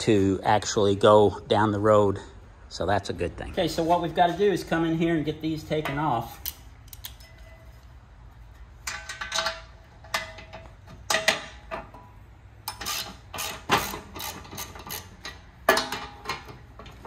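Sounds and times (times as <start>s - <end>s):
ratchet wrench clicking: 6.4s - 7.2s, 12.6s - 15.5s.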